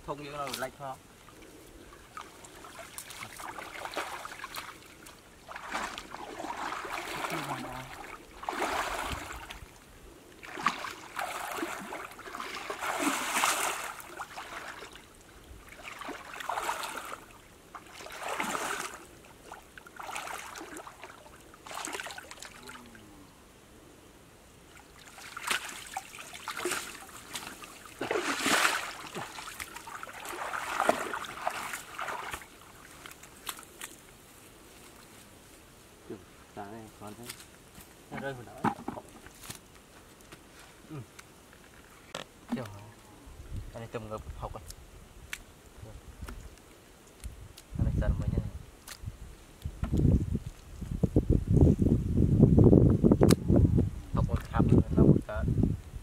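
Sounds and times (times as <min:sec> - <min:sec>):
water sloshing and splashing: 0:01.3 - 0:09.8, 0:10.4 - 0:23.0, 0:24.7 - 0:34.2, 0:38.1 - 0:39.6.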